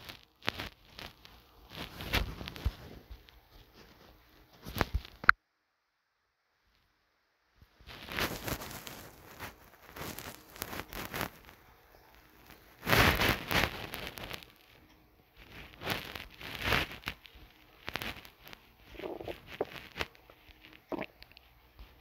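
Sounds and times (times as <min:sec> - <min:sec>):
irregular rustles: 0:00.0 - 0:05.2, 0:07.7 - 0:22.0.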